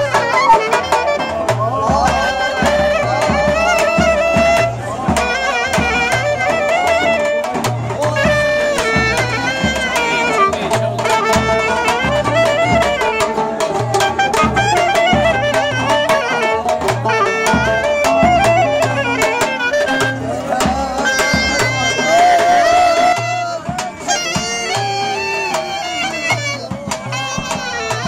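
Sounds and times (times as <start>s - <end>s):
clarinet melody: 0.0s - 28.0s
plucked lute: 0.0s - 28.0s.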